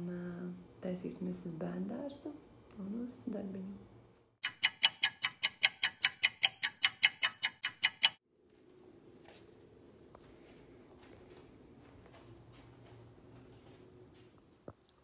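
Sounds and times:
faint room hum: 0.0s - 4.4s, 8.3s - 15.0s
clock ticking: 4.4s - 8.2s.

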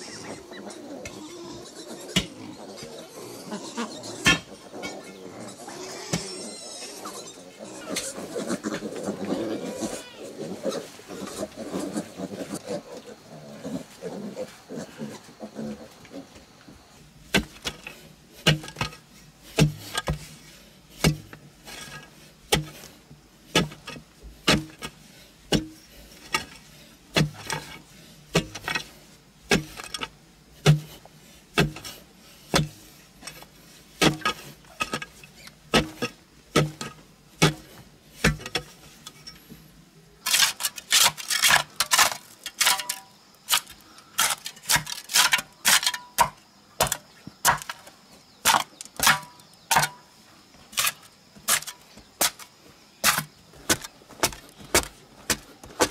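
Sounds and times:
hoe chopping and scraping soil: 2.1s - 2.5s, 4.2s - 5.0s, 6.0s - 6.5s, 17.2s - 55.9s
digging bar striking earth: 2.2s - 2.4s, 4.2s - 4.5s, 17.3s - 22.9s, 23.5s - 39.4s, 40.2s - 50.0s, 50.7s - 55.9s.

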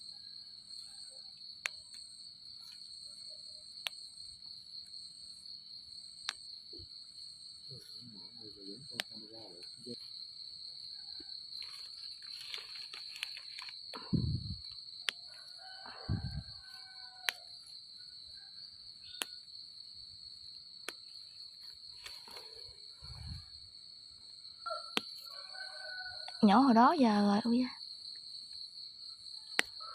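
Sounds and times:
insects chirring: 0.0s - 29.9s
rustling of plastic basket: 11.6s - 13.8s.

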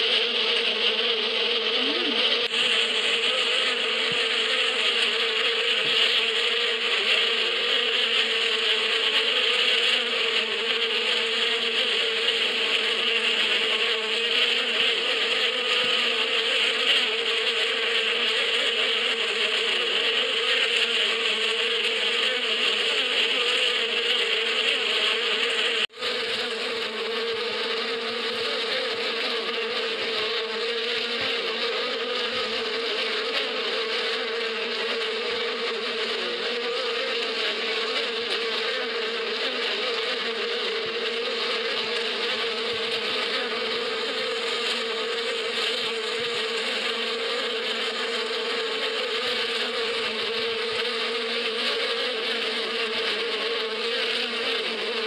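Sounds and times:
bees buzzing: 0.0s - 55.0s.

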